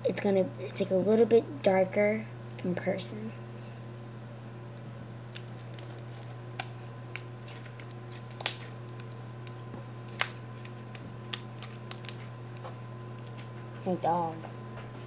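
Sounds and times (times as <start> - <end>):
slime popping and clicking: 10.9 - 12.2.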